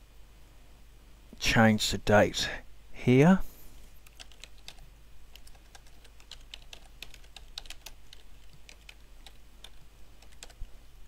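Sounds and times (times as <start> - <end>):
faint low hum: 0.0 - 11.0
keyboard typing: 4.0 - 10.7.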